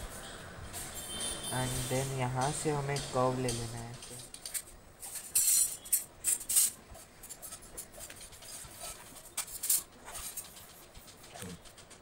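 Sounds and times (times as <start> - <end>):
pencil scratching on paper: 6.8 - 11.2.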